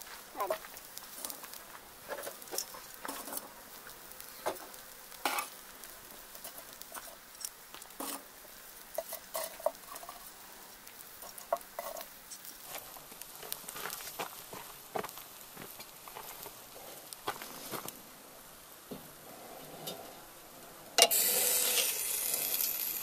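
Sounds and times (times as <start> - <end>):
metal tongs clicking and scraping: 9.0 - 10.3, 11.2 - 12.6.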